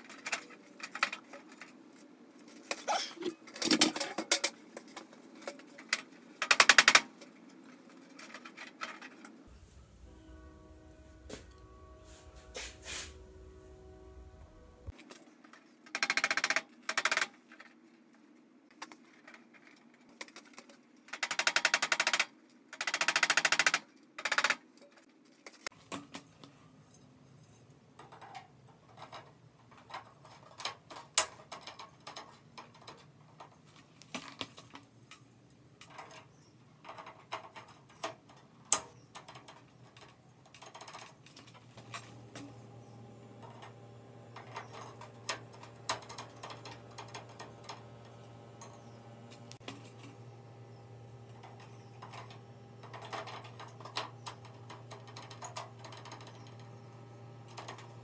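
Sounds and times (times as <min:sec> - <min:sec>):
faint low hum: 0:09.5 - 0:15.2.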